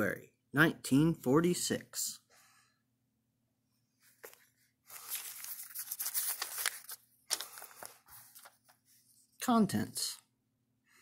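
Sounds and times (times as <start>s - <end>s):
paper pages rustling: 4.0s - 9.3s.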